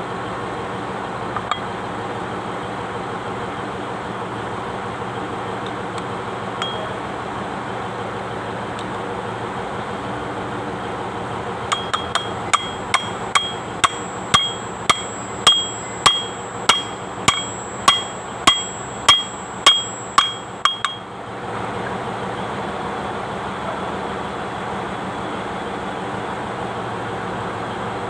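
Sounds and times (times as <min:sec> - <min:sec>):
hammer striking metal: 0:06.6 - 0:07.0, 0:11.7 - 0:21.1.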